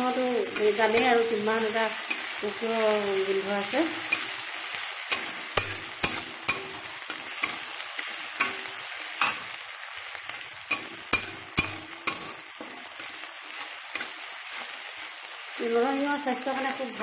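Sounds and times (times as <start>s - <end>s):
vegetables sizzling in oil: 0.0s - 17.0s
metal spatula scraping wok: 0.1s - 9.6s, 10.6s - 14.8s.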